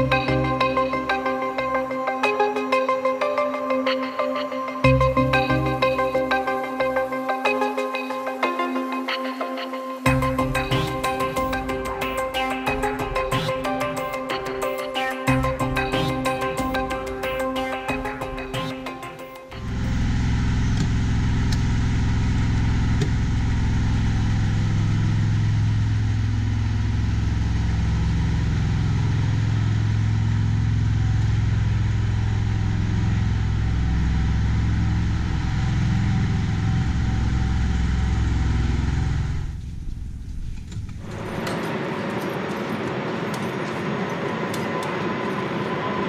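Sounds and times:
deep engine hum: 19.5 - 41.4.

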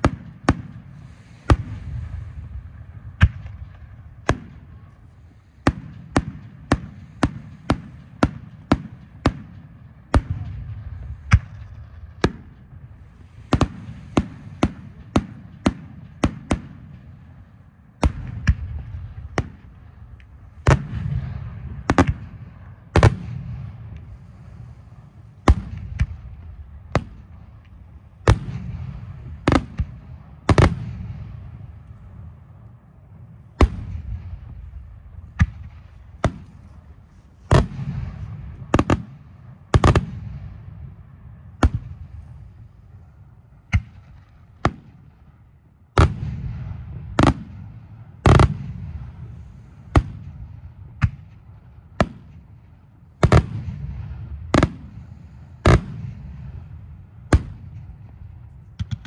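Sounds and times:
low rumble: 0.8 - 6.7.

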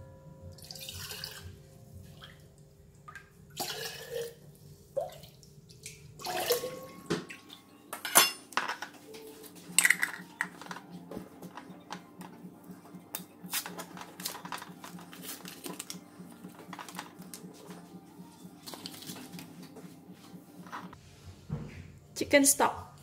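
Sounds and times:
liquid sloshing and splashing: 3.1 - 7.6
clinks of glass and metal: 8.0 - 8.9.

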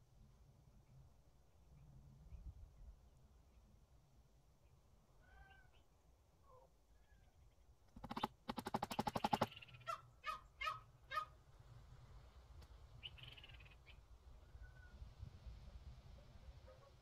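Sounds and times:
poultry squawks: 8.0 - 11.4
poultry calling: 9.0 - 11.4.

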